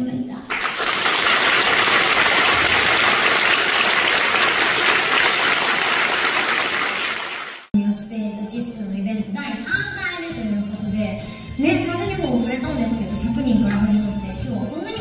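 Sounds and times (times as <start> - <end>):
audience applauding: 0.5 - 7.7.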